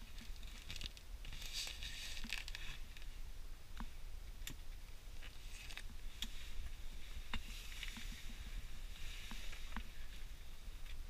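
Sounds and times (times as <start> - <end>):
fabric rustling and rubbing: 0.0 - 2.9, 5.3 - 10.4
low steady rumble: 0.0 - 11.0.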